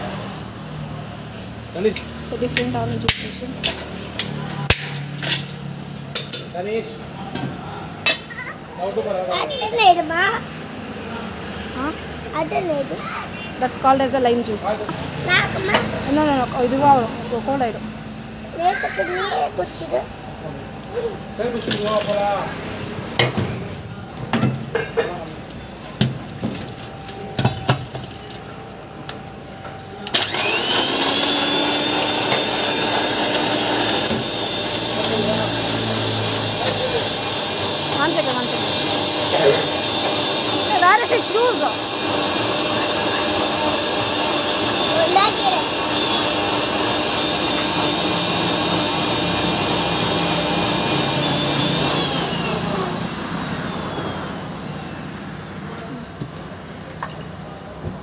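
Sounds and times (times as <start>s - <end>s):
blender motor whining: 14.6s - 23.8s, 29.8s - 56.5s.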